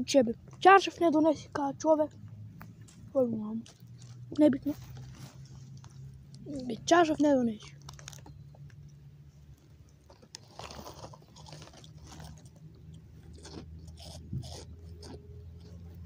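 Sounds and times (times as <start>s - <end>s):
low steady hum: 0.0s - 16.0s
person chewing crunchy food: 3.6s - 6.1s, 7.8s - 9.0s, 9.6s - 16.0s.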